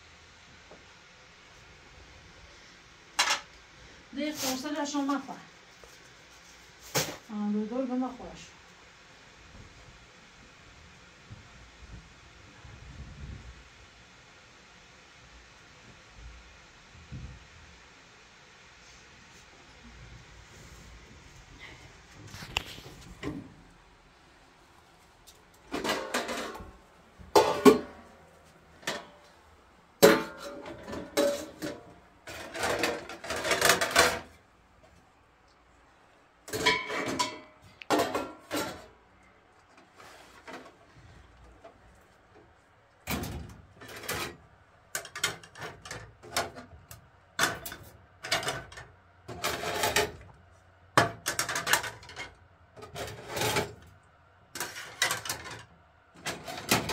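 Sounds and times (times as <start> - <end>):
dishes and cutlery clattering: 25.7 - 26.7, 27.4 - 28.0, 30.0 - 34.3, 36.5 - 38.9, 54.6 - 55.6.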